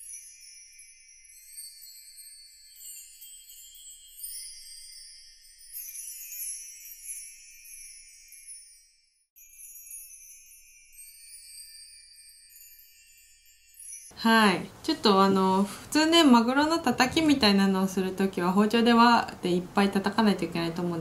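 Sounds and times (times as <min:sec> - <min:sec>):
tinkling bell-like chime music: 0:00.0 - 0:14.2.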